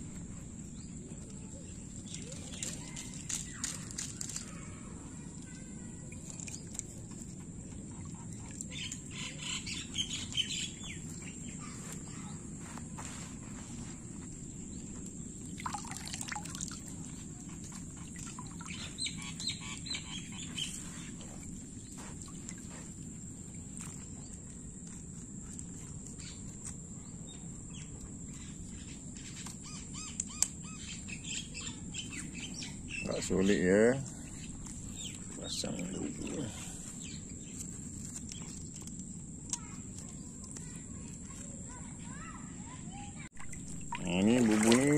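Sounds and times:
birds chirping and calling: 8.3s - 13.9s, 17.4s - 22.7s, 27.3s - 38.9s.

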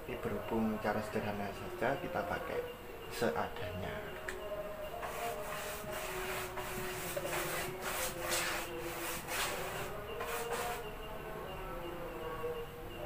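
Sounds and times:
paintbrush rubbing swishes: 5.0s - 10.9s.

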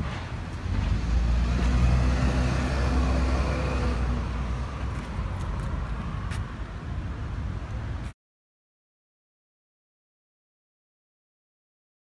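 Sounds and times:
vehicle engine droning: 0.0s - 8.1s.

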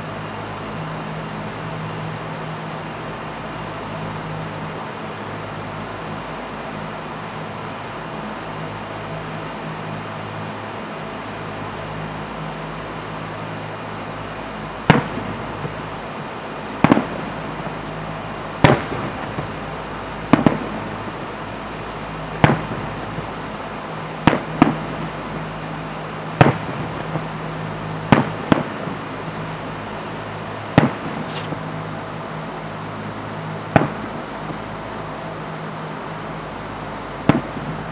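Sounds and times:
fireworks bangs echoing: 14.9s - 16.0s, 16.8s - 17.8s, 18.6s - 21.2s, 22.3s - 23.4s, 24.2s - 25.4s, 26.4s - 29.5s, 30.7s - 31.7s, 33.7s - 34.6s, 37.2s - 37.9s.

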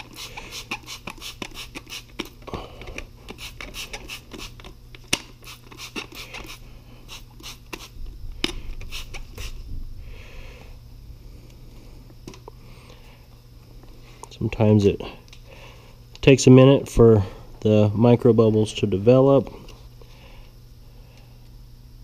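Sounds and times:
trigger spray bottle squirting: 0.0s - 2.3s, 3.3s - 9.6s.

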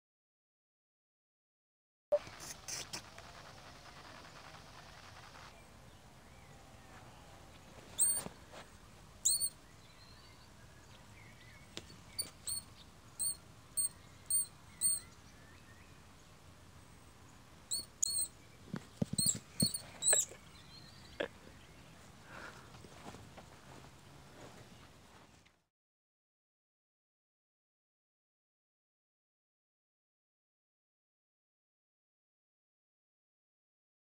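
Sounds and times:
vole distress squeaks: 8.0s - 8.3s, 9.3s - 9.5s, 12.2s - 12.6s, 13.2s - 13.4s, 14.3s - 15.0s, 17.7s - 18.3s, 19.1s - 20.4s.

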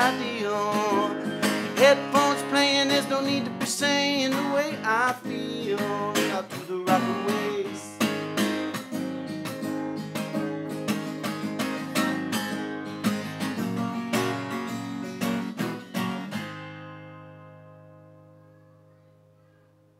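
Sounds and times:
acoustic guitar strumming chords: 0.0s - 19.9s.

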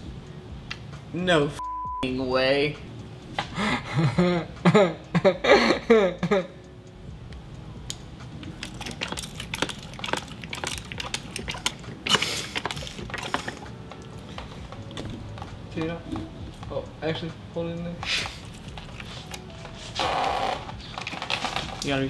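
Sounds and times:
hand pump clicking and squishing: 8.4s - 16.7s, 18.0s - 20.2s.

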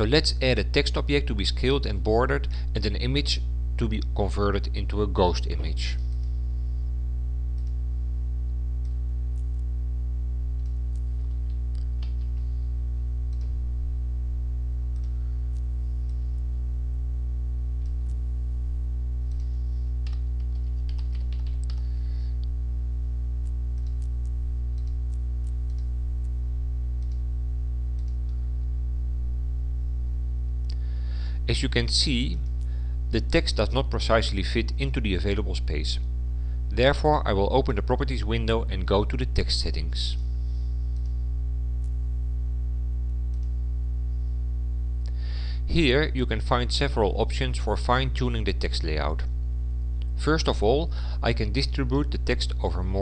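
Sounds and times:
low electrical hum: 0.0s - 53.0s
keyboard typing: 19.3s - 21.9s.

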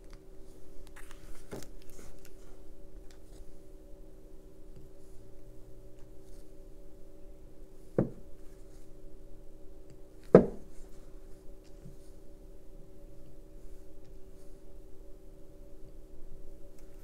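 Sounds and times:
steady low hum: 0.0s - 17.0s
knocks on a tabletop: 8.0s - 8.2s.

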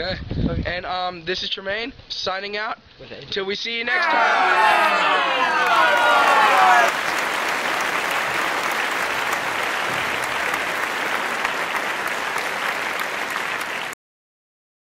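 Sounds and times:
applause: 4.0s - 14.0s.

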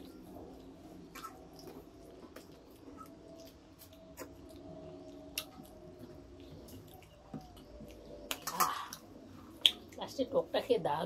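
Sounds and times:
fingers eating from steel plate: 0.0s - 10.0s.

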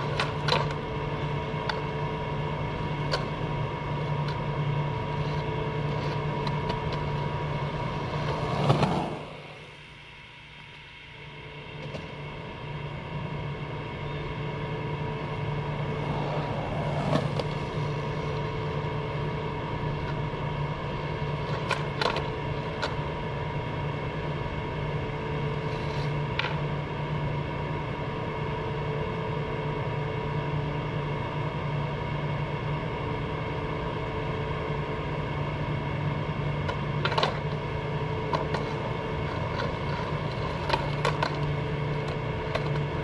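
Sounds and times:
skateboard clacks: 0.0s - 9.6s, 15.2s - 23.4s, 25.4s - 26.8s, 36.6s - 43.0s
steady machine hum: 0.0s - 43.0s.

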